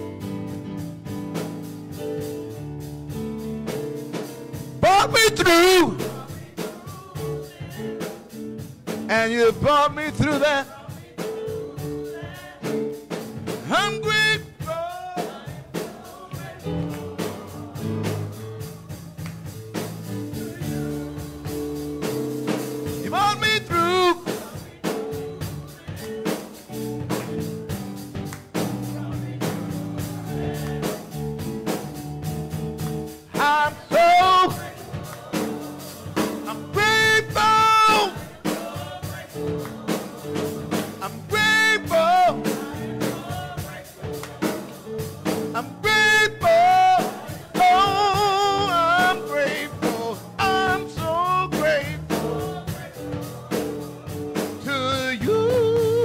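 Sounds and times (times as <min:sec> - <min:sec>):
gospel music with held chords: 0:00.0 - 0:56.0
steady beat: 0:00.1 - 0:56.0
person singing with vibrato: 0:04.8 - 0:08.4, 0:09.0 - 0:19.0, 0:20.4 - 0:26.8, 0:33.3 - 0:56.0.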